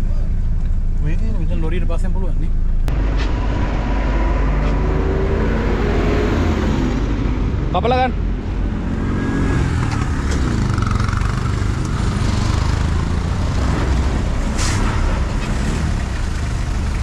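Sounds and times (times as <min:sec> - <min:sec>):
motorcycle engine rumbling: 0:06.8 - 0:17.0.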